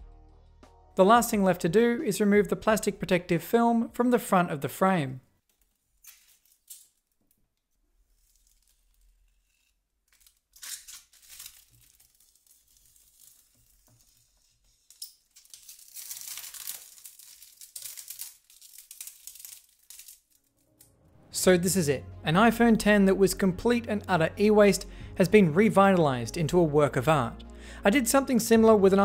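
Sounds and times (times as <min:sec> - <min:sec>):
plastic film peeling: 0:05.4 - 0:20.9.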